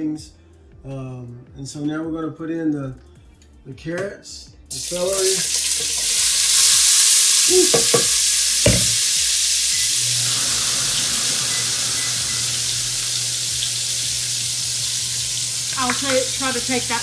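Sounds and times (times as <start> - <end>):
vegetables sizzling in grease: 4.7 - 17.0
knock: 7.7 - 9.0.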